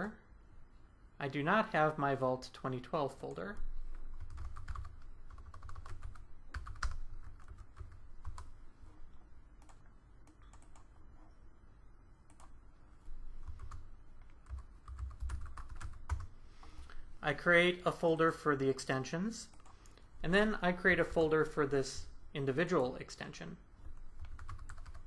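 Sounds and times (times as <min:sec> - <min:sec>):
typing on computer keyboard: 0:04.1 - 0:08.5, 0:09.6 - 0:11.0, 0:13.4 - 0:16.3, 0:24.2 - 0:25.0.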